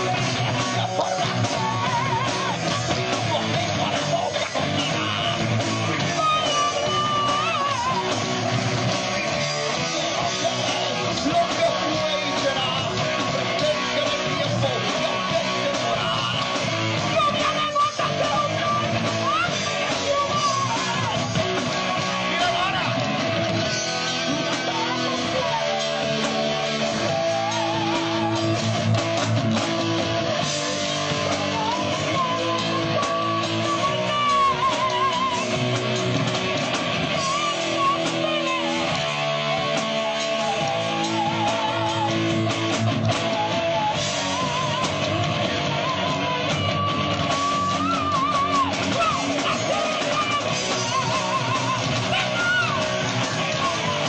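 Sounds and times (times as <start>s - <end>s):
drums: 0.0s - 54.0s
electric guitars: 0.0s - 54.0s.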